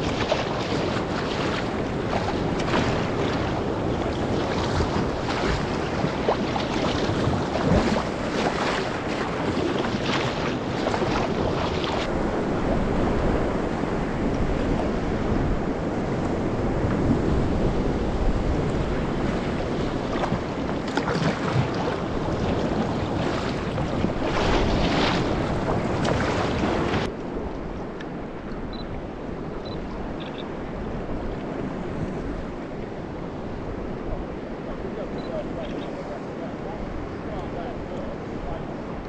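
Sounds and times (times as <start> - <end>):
water slapping against kayak hull: 0.0 - 12.1, 16.1 - 27.2
water splashes: 0.0 - 13.5, 17.7 - 39.0
wind buffeting microphone: 0.0 - 39.0.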